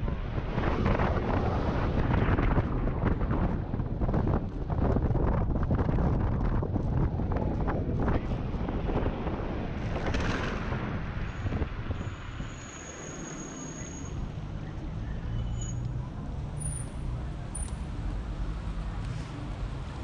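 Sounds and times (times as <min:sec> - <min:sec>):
wind buffeting microphone: 0:00.0 - 0:12.6
city traffic noise: 0:00.0 - 0:20.0.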